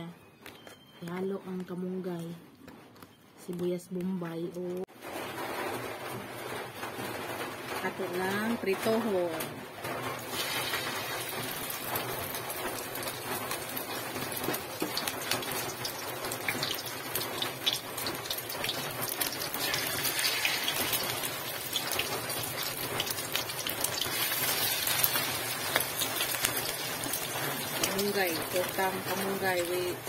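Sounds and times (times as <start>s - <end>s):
batter sizzling in hot oil: 10.0s - 30.0s.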